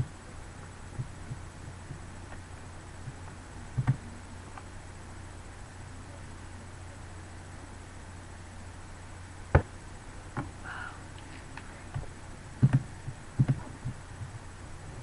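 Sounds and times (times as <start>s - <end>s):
steady low hum: 0.0s - 15.0s
sharp knocks and clicks: 3.0s - 4.7s, 11.9s - 14.4s.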